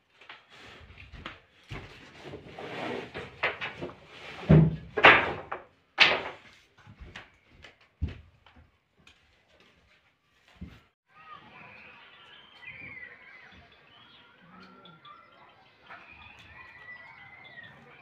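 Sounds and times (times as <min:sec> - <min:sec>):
rustling and shuffling: 0:00.0 - 0:11.0
knocks and bangs on wood: 0:03.2 - 0:06.5.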